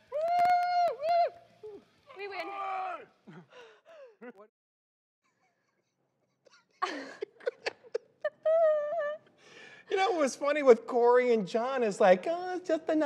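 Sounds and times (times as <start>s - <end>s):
faint whooping voices: 0.0s - 3.5s
people laughing: 6.7s - 10.3s.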